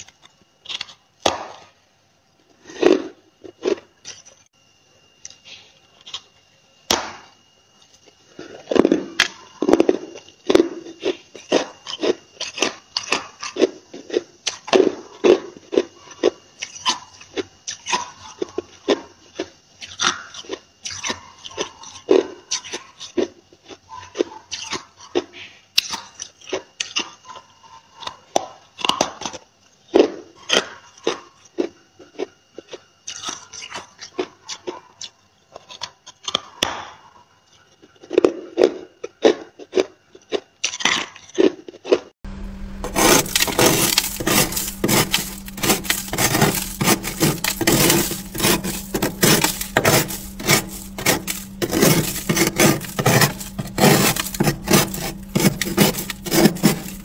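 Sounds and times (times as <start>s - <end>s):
frost being chewed: 0.0s - 1.6s, 7.8s - 36.8s, 37.4s - 57.0s
steady low hum: 42.2s - 57.0s
spoon scraping frost: 42.7s - 57.0s.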